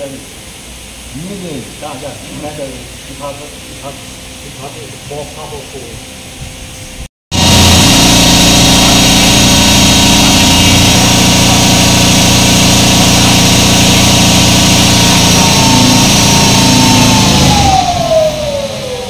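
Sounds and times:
electric motor whine: 0:07.3 - 0:19.0.

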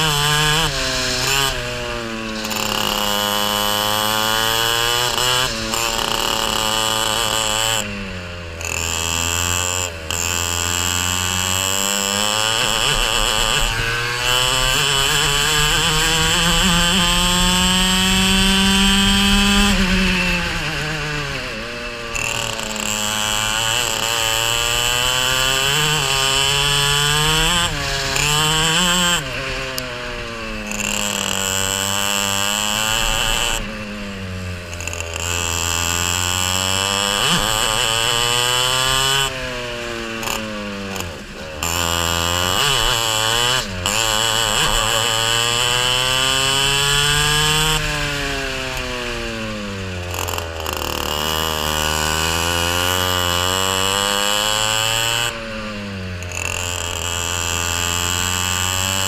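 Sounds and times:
racing kart engine accelerating: 0:00.0 - 0:59.0.

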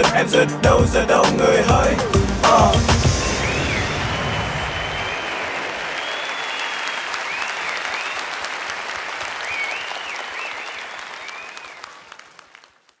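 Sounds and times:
whistles over clapping: 0:03.2 - 0:12.8
audience applauding: 0:03.2 - 0:13.0.

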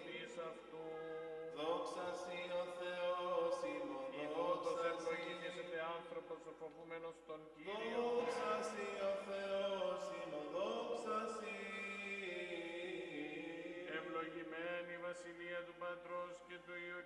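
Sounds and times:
person chanting in held notes: 0:07.6 - 0:17.0.

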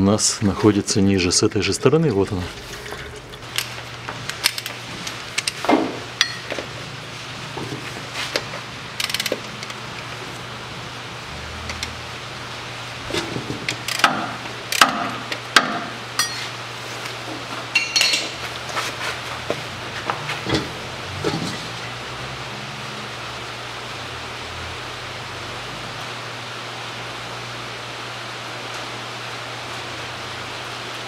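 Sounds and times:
low hum: 0:01.6 - 0:05.4
ratchet wrench clicking: 0:04.4 - 0:04.8, 0:09.0 - 0:09.8, 0:13.7 - 0:14.1, 0:14.7 - 0:14.9
metallic tool clinks: 0:16.2 - 0:16.5, 0:17.8 - 0:18.3.

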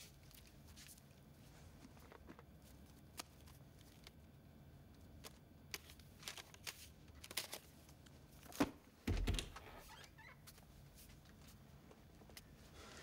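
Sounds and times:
door opening thump: 0:08.6 - 0:09.6.

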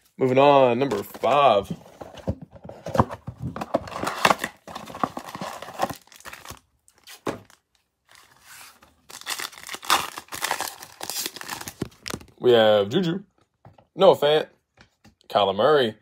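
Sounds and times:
plastic wrap tearing and crinkling: 0:03.9 - 0:12.4
foil card pack tearing: 0:09.1 - 0:12.2.

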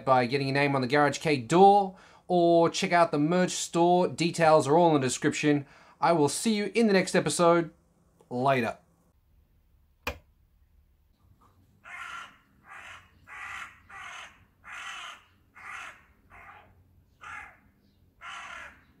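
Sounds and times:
crow cawing: 0:11.8 - 0:19.0.

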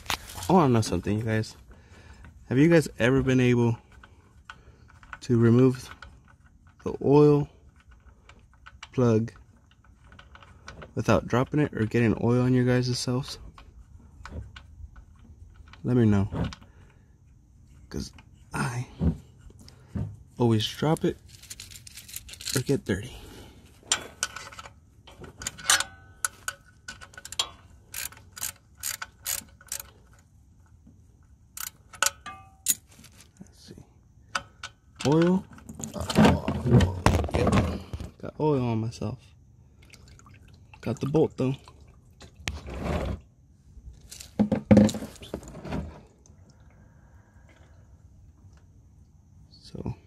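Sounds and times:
socket ratchet clicking: 0:26.9 - 0:30.0, 0:31.6 - 0:32.8
wet squishing and splashing: 0:39.7 - 0:41.0.

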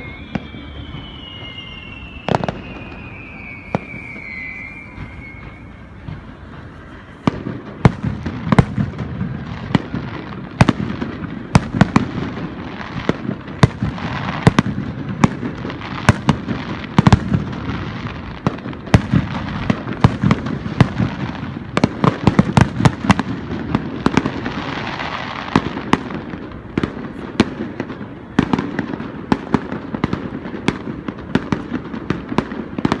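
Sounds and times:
firework shells bursting: 0:00.0 - 0:27.3
continuous noisy wash: 0:02.1 - 0:11.8.

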